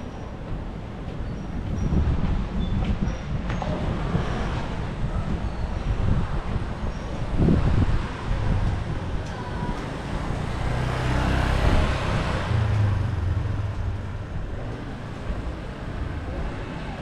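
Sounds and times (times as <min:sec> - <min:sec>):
vehicle passing by: 0:09.8 - 0:17.0.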